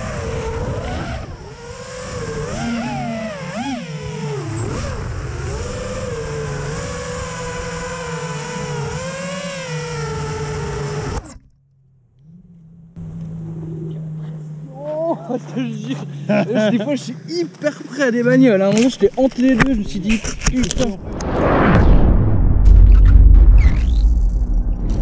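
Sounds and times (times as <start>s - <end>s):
drone motors whining: 0.0s - 16.4s.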